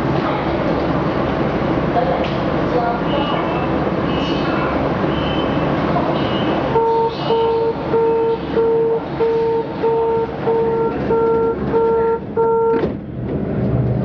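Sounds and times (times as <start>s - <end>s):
station platform noise: 0.0s - 14.0s
door warning beeps: 6.3s - 12.9s.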